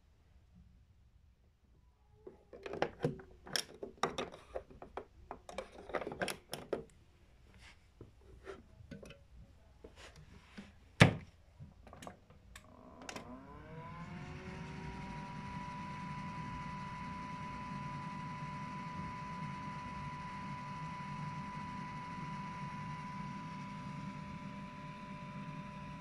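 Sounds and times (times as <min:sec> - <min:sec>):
clicks and knocks from handling: 0:02.3 - 0:07.0
washing machine door thump: 0:11.0 - 0:11.3
washing machine whine: 0:12.6 - 0:26.0.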